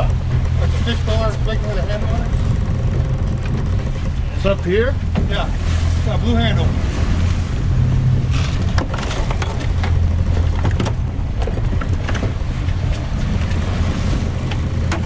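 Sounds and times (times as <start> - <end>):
outboard engines droning: 0.0 - 15.0
water noise: 0.0 - 15.0
wind: 0.0 - 15.0
sharp clicks and knocks: 8.5 - 13.6.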